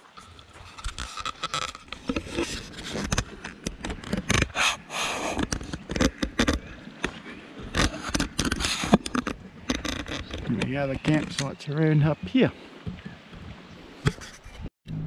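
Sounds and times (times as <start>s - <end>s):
scraping and rustling: 0.0s - 11.6s
footsteps crunching on rough ground: 0.0s - 14.5s.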